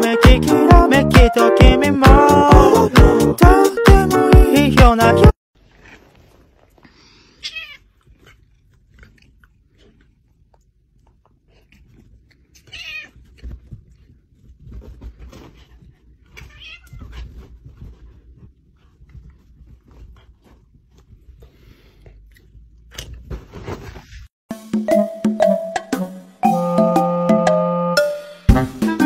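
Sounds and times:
cat meowing: 0:07.4 - 0:07.9, 0:12.6 - 0:13.2, 0:16.4 - 0:17.2
animals shuffling on bedding: 0:13.0 - 0:22.0.

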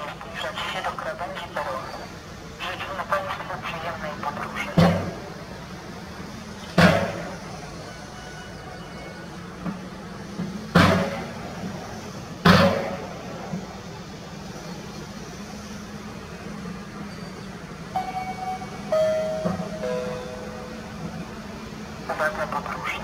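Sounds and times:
electric locomotive hum: 0:00.0 - 0:23.0
sharp loud bangs: 0:06.8 - 0:07.4, 0:10.7 - 0:11.3, 0:12.4 - 0:13.1.

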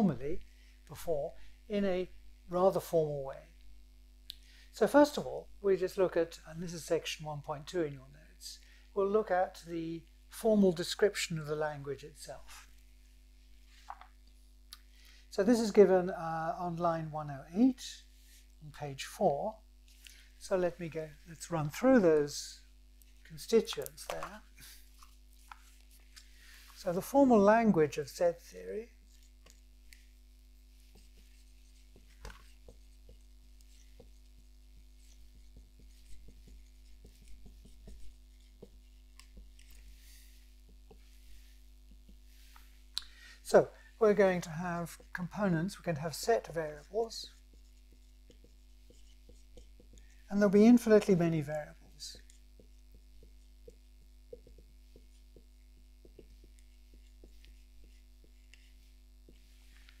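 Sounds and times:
low electrical hum: 0:00.0 - 1:00.0
pen scratching while writing: 0:28.9 - 0:42.8, 0:46.4 - 0:51.2, 0:51.8 - 1:00.0.

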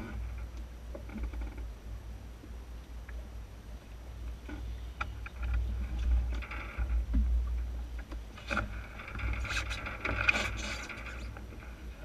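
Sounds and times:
wind rumbling on microphone: 0:00.0 - 0:12.0
water splashing against hull: 0:04.3 - 0:12.0.

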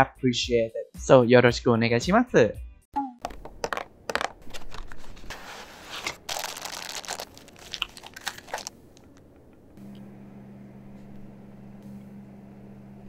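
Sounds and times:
plastic bags crinkling: 0:03.6 - 0:09.3.

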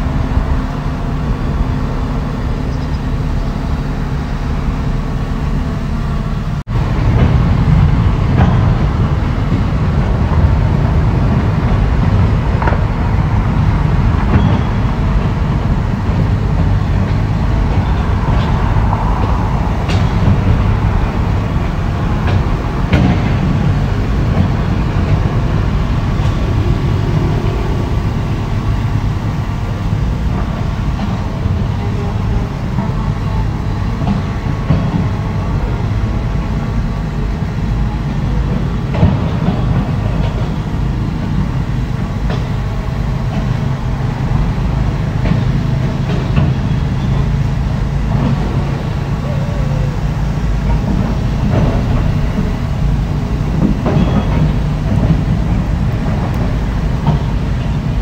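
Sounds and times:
excavator diesel engine running: 0:00.0 - 0:58.0.

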